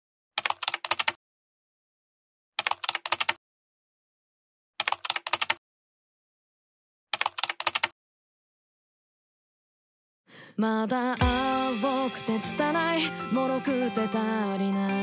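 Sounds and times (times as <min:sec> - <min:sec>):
keyboard keystroke clicks: 0:02.6 - 0:03.4, 0:04.8 - 0:05.6, 0:07.2 - 0:07.9.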